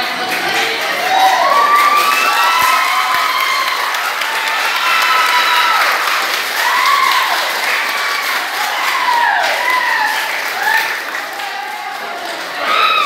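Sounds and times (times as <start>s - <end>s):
crowd clapping and cheering: 0.0s - 13.0s
high-pitched shouts: 12.6s - 13.0s.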